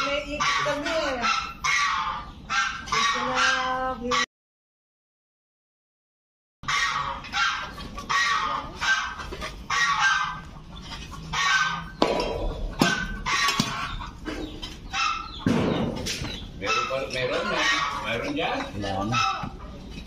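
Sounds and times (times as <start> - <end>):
geese honking: 0.0 - 4.3, 6.6 - 15.6, 16.3 - 19.8
sharp knocks: 12.0 - 13.8, 15.4 - 16.4.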